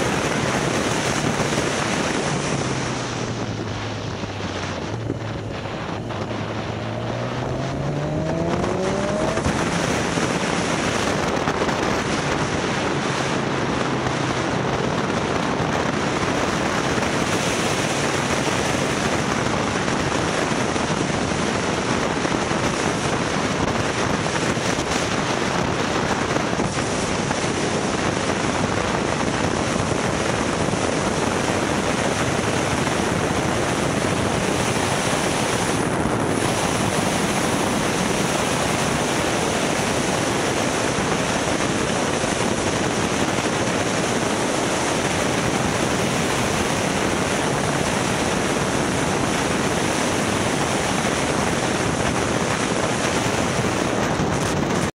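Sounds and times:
motorcycle engine and road noise: 0:00.0 - 0:54.9
wind rushing over microphone: 0:00.0 - 0:55.0.

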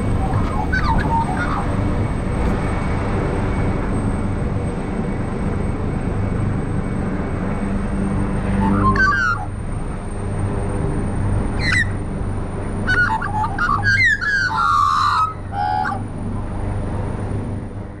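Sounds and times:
magpies warbling calls: 0:00.0 - 0:02.6, 0:08.5 - 0:09.6, 0:11.5 - 0:12.1, 0:12.8 - 0:16.1
low hum: 0:00.0 - 0:18.0.

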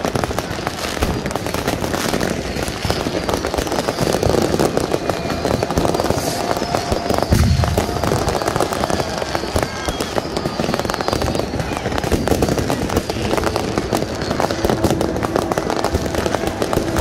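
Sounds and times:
fireworks crackling and popping: 0:00.0 - 0:17.0
heavy firework boom: 0:02.4 - 0:17.0.

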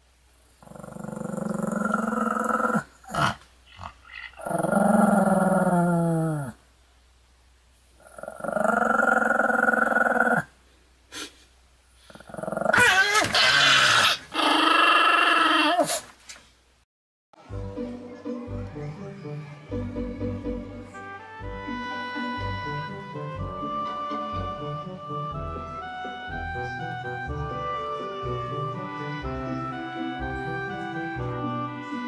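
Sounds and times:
dog growling: 0:00.6 - 0:06.6, 0:08.0 - 0:10.5, 0:12.1 - 0:16.0.

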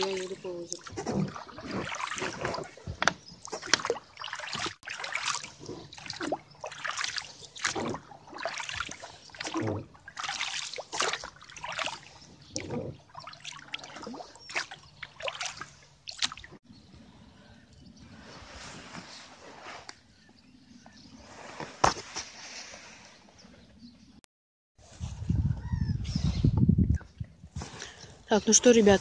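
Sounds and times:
oars splashing in water: 0:00.0 - 0:16.6.

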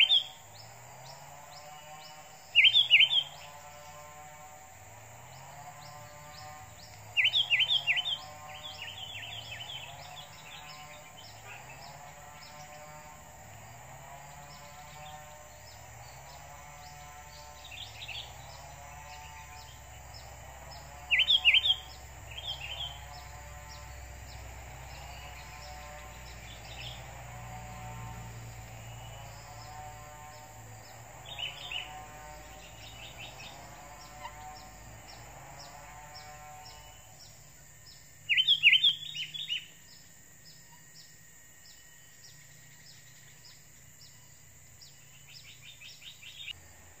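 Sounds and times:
birds giving sharp rapid calls: 0:00.0 - 0:04.1, 0:05.2 - 0:13.2, 0:14.4 - 0:37.4, 0:38.3 - 0:39.7
constant high hiss: 0:00.0 - 0:47.0.

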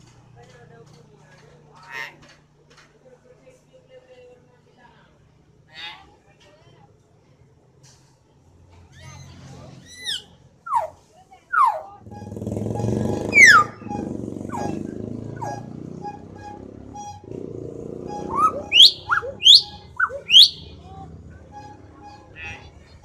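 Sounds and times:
low engine rumble: 0:07.2 - 0:23.0
bird whistling: 0:09.8 - 0:23.0.

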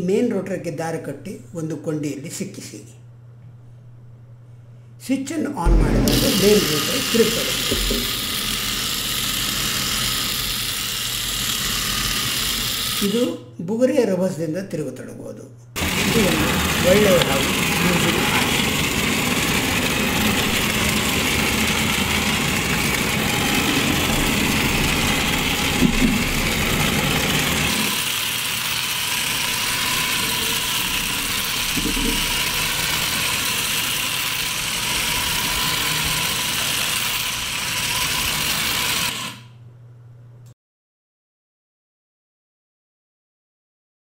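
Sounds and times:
toy motor whirring buzz: 0:06.3 - 0:13.4, 0:15.8 - 0:39.6.

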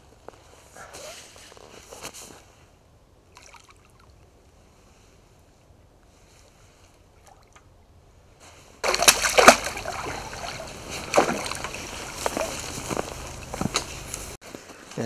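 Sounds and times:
fish splashing at surface: 0:08.8 - 0:13.4.

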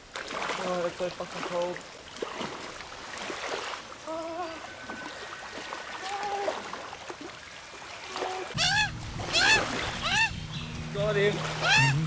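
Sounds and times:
water splashing around legs: 0:00.0 - 0:04.0, 0:05.6 - 0:12.0.

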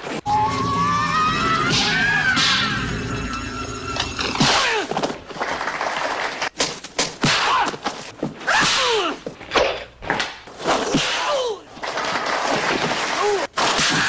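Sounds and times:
music: 0:00.3 - 0:04.5.

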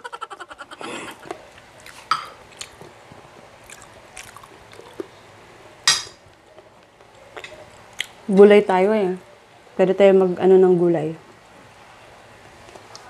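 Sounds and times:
wet chewing and lip smacks: 0:01.2 - 0:02.9, 0:03.6 - 0:05.1, 0:07.4 - 0:08.2.

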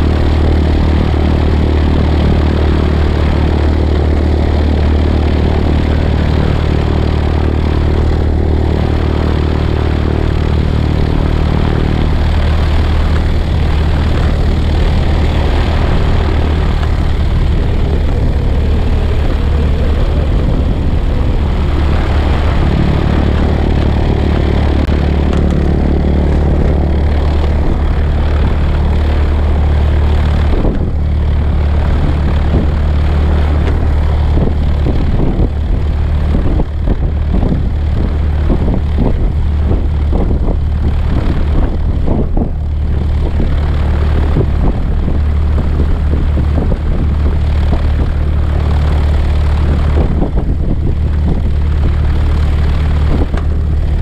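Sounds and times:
propeller plane engine drone: 0:00.0 - 0:54.0
rushing wind noise: 0:00.0 - 0:54.0.

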